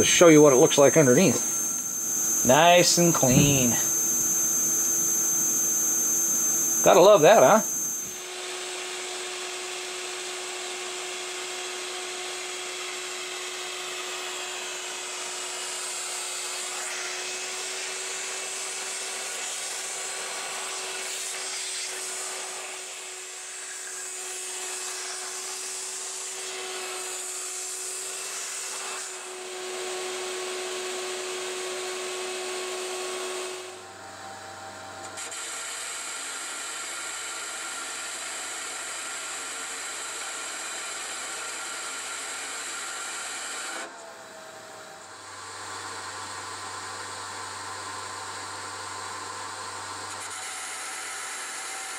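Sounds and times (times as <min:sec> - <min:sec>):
lathe cutting metal: 0:00.0 - 0:08.3
lathe motor whine: 0:00.0 - 0:51.9.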